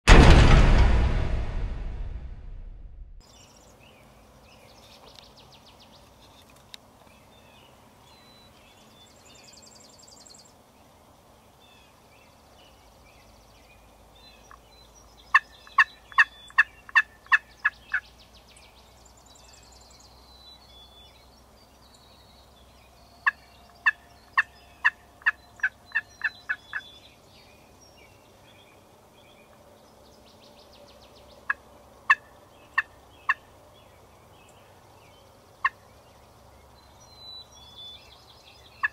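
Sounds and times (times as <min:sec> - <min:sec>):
turkey yelping: 0:15.3 - 0:18.0.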